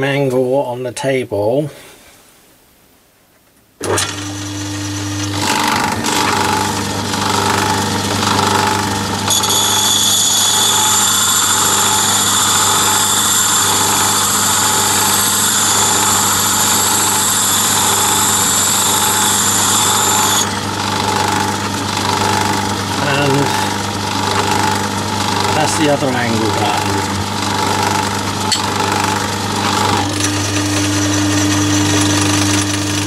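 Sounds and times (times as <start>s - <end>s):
lathe motor hum: 3.8s - 33.0s
high-pitched lapping whine: 22.4s - 30.3s.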